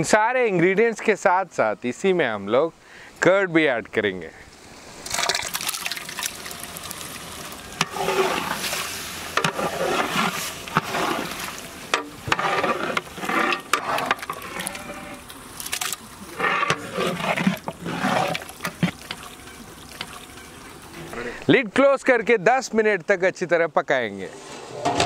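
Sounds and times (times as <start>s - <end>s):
ladle stirring thick curry: 6.6s - 15.0s, 16.0s - 21.1s.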